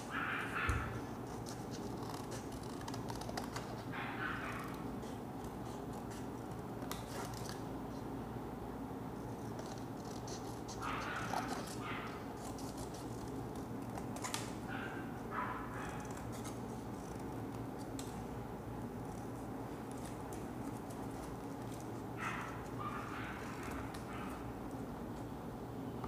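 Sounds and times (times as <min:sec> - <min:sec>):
steady background hum: 0:00.0 - 0:26.0
paper rustling: 0:00.6 - 0:04.7, 0:05.7 - 0:07.7.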